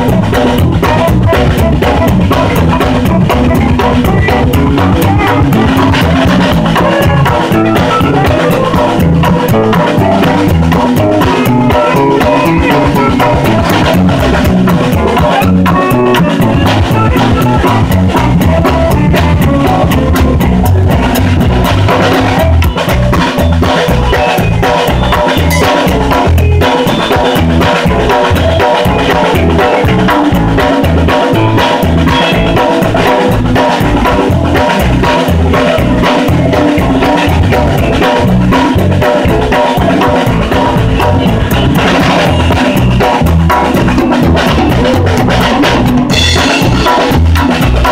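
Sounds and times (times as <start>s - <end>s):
saxophone: 0.0s - 47.2s
electric guitar: 0.0s - 47.9s
live band playing: 0.0s - 47.9s
loud drum kit: 0.0s - 47.9s.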